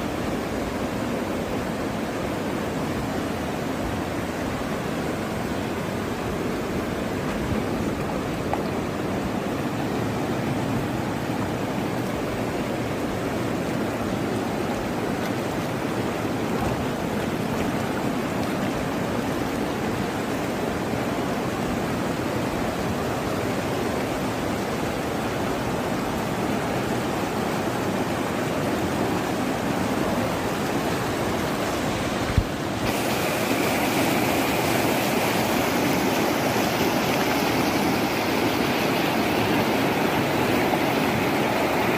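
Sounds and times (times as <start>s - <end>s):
river rushing: 0.0s - 41.9s.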